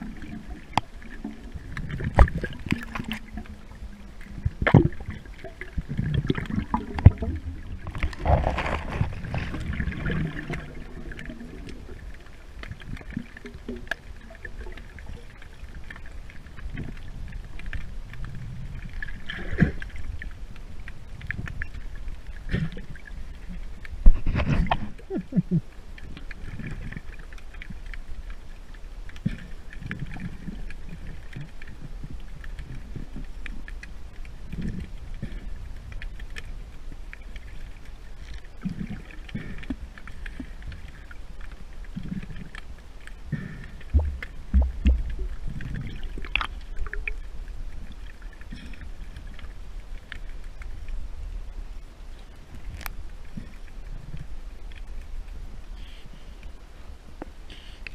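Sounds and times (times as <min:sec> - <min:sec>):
small underwater clicks and crackles: 0:00.0 - 0:57.9
underwater rumble of moving water: 0:00.0 - 0:57.9
heavy dull thuds: 0:43.9 - 0:45.1.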